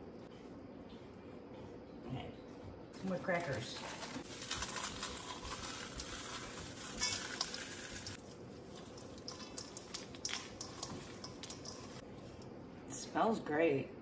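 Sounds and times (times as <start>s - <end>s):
hands mixing stuffing in bowl: 3.0s - 12.8s
crackers crushed into metal bowl: 3.3s - 12.0s.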